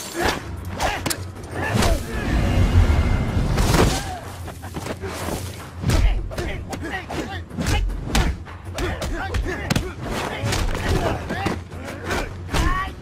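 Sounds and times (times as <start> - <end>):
low rumbling music score: 0.6 - 4.3.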